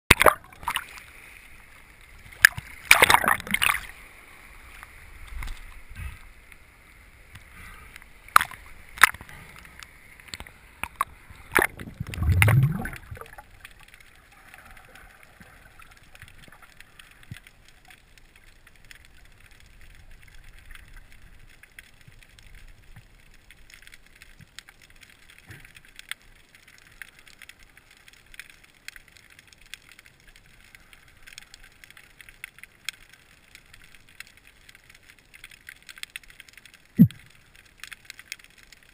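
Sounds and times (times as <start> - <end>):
low rush of water: 0.1 - 17.7
small underwater clicks: 0.1 - 38.9
muffled underwater hiss: 0.4 - 23.4
seawater sloshing and splashing: 11.4 - 13.5.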